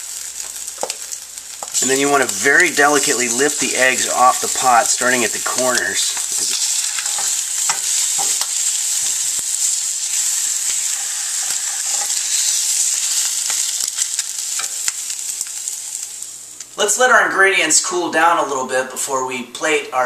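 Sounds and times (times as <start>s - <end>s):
eggs sizzling in a frying pan: 0.0s - 16.8s
spatula scraping and tapping pan: 5.8s - 9.4s, 10.6s - 12.6s.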